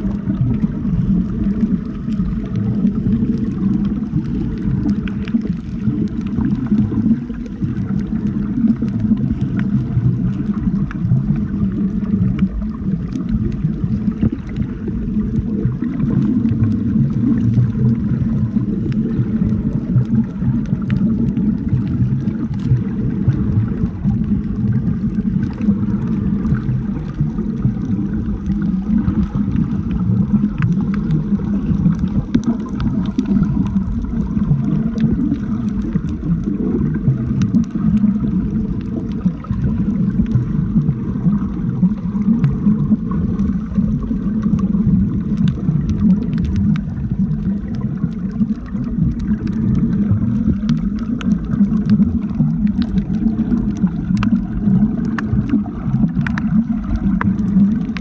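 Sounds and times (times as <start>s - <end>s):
muffled underwater rumble: 0.0s - 58.0s
faint sharp clicks: 50.5s - 58.0s.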